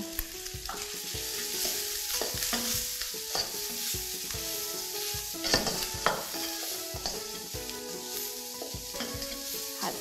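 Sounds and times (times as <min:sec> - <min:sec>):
bacon and mushrooms sizzling: 0:00.0 - 0:10.0
spatula scraping and tapping pan: 0:00.6 - 0:09.6.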